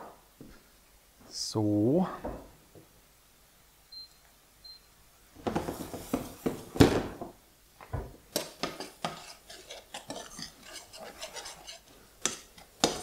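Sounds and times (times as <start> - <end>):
spoon scraping in saucepan: 8.3 - 13.0.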